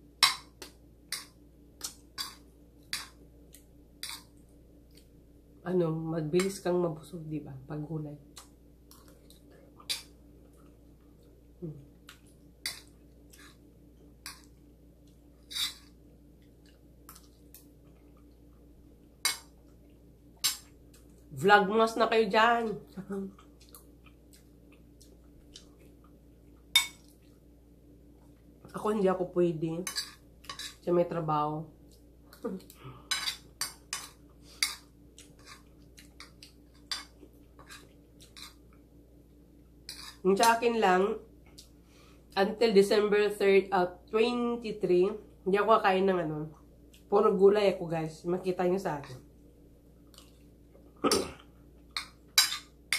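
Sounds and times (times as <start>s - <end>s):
chewing: 8.4s - 13.6s, 14.3s - 18.7s, 23.3s - 27.5s, 31.8s - 38.8s, 50.0s - 52.2s
metal spoon scraping ceramic plate: 15.5s - 15.9s
cutlery clinking on a plate: 52.0s - 52.7s.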